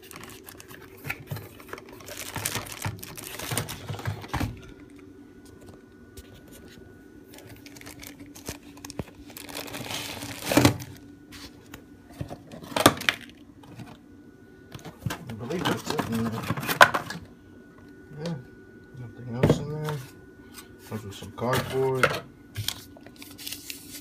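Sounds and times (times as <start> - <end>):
plastic wrap crinkling: 0.0 - 5.0, 7.3 - 11.6, 22.6 - 24.0.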